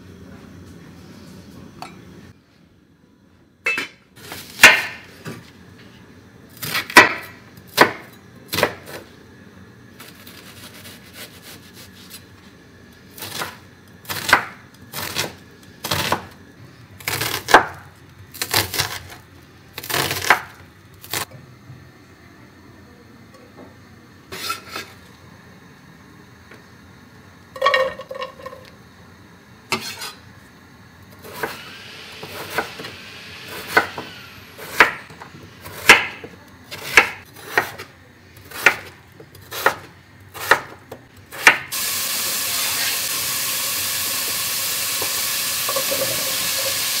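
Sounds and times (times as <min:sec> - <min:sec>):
knife chopping on wooden board: 0:33.6 - 0:37.8, 0:38.5 - 0:38.9, 0:39.5 - 0:40.8.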